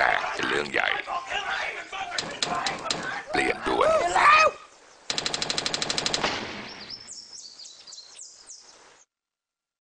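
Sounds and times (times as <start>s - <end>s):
birds chirping: 0.0s - 9.1s
fast rattle of sharp clicks: 5.1s - 6.4s.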